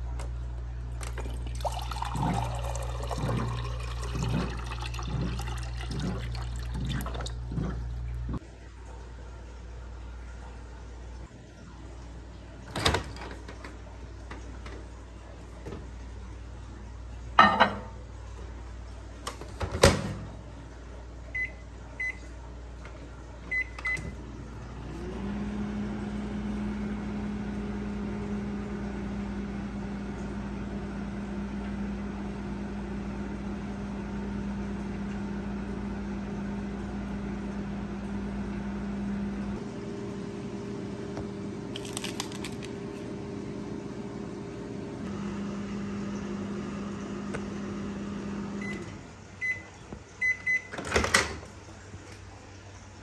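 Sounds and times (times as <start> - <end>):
microwave humming: 0.0 - 53.0.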